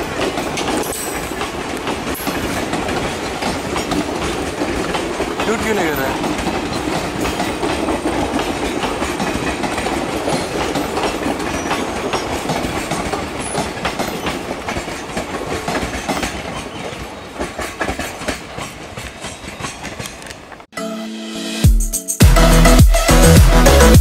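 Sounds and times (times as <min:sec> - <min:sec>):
train rumbling: 0:00.0 - 0:20.7
train wheels clattering over rail joints: 0:00.0 - 0:20.7.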